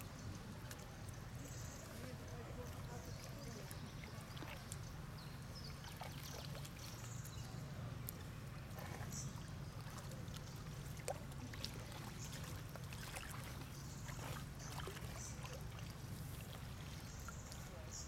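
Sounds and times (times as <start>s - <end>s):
water splashing and lapping: 0.0s - 18.0s.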